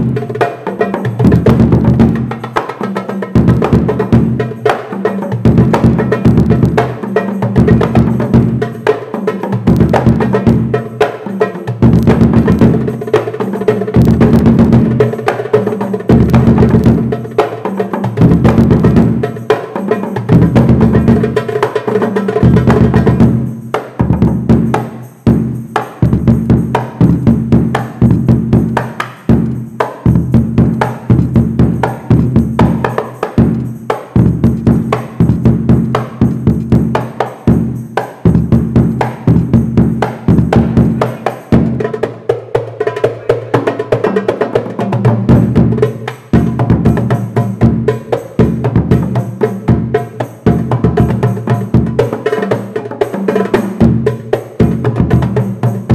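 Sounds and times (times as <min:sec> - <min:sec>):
hand drum strokes: 0:00.0 - 0:55.9
deep bass drum strikes: 0:29.4 - 0:32.8.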